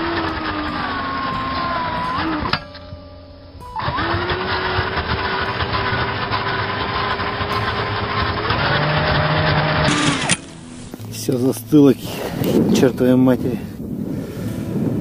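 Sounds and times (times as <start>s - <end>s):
powered ice auger running: 0.0s - 2.6s, 3.8s - 10.5s.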